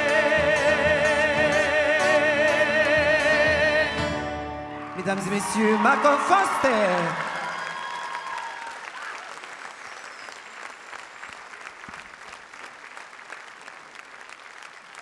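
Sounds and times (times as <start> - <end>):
audience applauding: 4.7 - 15.0.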